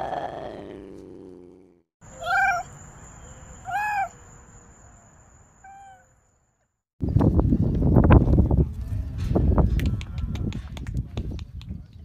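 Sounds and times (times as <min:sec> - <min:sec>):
cat meowing: 0:02.1 - 0:02.7, 0:03.7 - 0:04.1.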